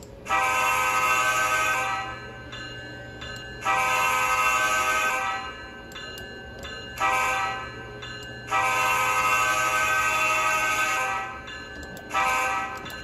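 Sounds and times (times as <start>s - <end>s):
model train air horn chord: 0.3s - 2.2s, 3.6s - 5.5s, 7.0s - 7.7s, 8.5s - 11.4s, 12.1s - 12.9s.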